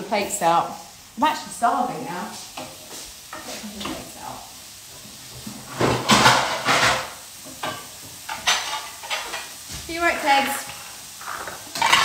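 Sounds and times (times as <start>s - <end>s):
plates clattering: 5.7s - 9.5s, 10.7s - 12.0s.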